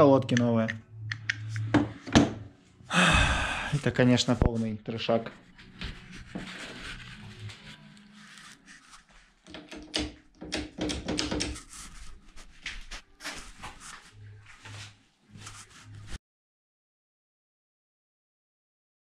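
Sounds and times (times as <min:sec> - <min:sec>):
knocks clicks and rustles: 0:09.4 - 0:11.7.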